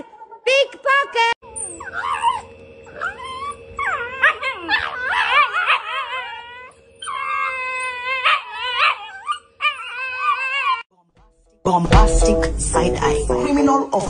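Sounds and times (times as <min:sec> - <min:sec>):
dogs yowling: 0:01.4 - 0:10.9.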